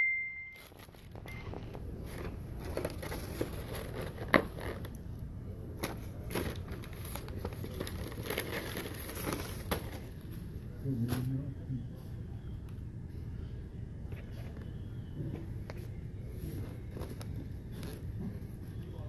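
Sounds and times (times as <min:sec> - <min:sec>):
high beep: 0:00.0 - 0:00.6
foam containers and napkins handled: 0:00.5 - 0:12.4, 0:13.1 - 0:19.0.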